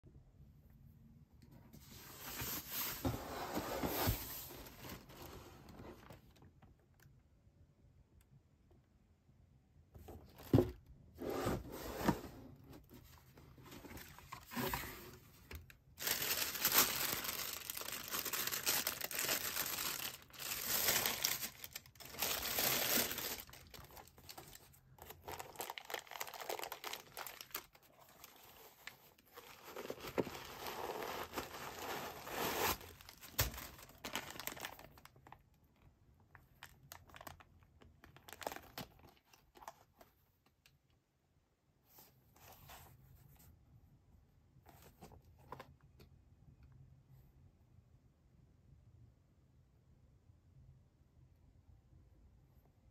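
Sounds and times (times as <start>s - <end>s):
plastic wrap crinkling: 16.0s - 35.4s, 36.6s - 39.7s.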